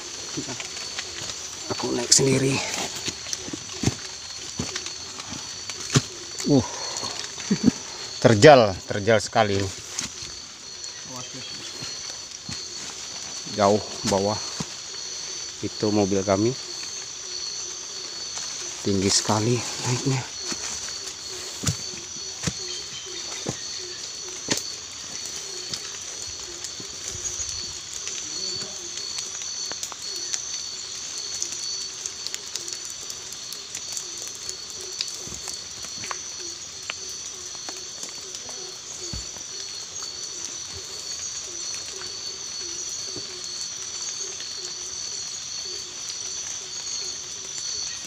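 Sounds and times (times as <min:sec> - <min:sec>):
footsteps on rock and leaves: 0:00.0 - 0:06.4, 0:09.5 - 0:15.0, 0:18.3 - 0:28.9, 0:38.2 - 0:39.5
high-pitched insect drone: 0:00.0 - 0:48.0.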